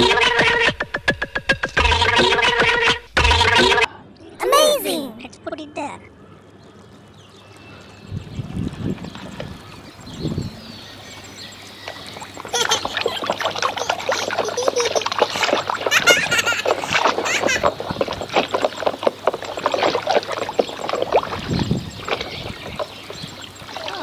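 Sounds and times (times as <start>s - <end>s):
water sloshing in a plastic tub: 6.4s - 11.2s, 11.9s - 24.0s
plastic toys swishing in water: 12.1s - 24.0s.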